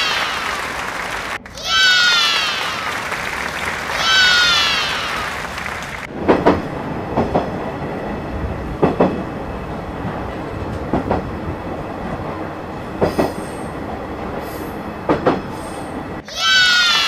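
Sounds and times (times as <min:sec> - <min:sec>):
freight train rumble: 0:00.0 - 0:16.2
wheel clacks over rail joints: 0:06.1 - 0:07.6, 0:10.2 - 0:15.8.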